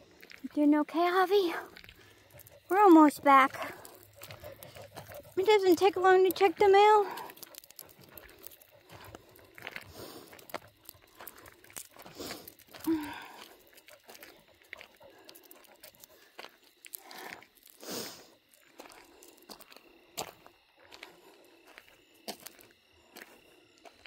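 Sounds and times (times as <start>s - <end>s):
footsteps crunching on gravel: 0.0s - 24.0s.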